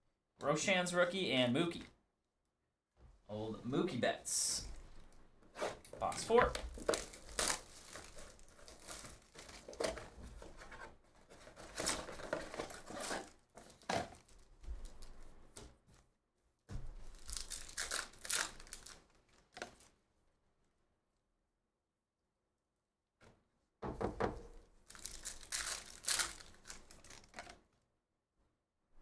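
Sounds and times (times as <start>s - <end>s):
foil card packs tearing: 5.7s - 10.6s, 11.3s - 15.1s, 17.1s - 19.9s, 24.9s - 27.5s.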